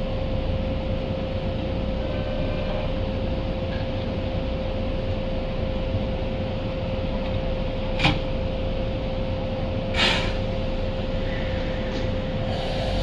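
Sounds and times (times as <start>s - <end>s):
train equipment humming: 0.0s - 13.0s
short hiss: 10.0s - 10.4s.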